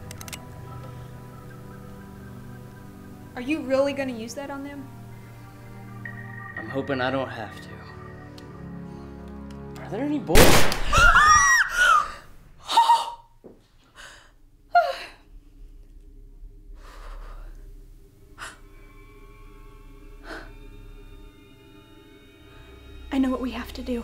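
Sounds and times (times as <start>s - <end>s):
faint steady drone: 0.0s - 9.7s, 13.8s - 24.0s
women screaming: 10.9s - 13.2s.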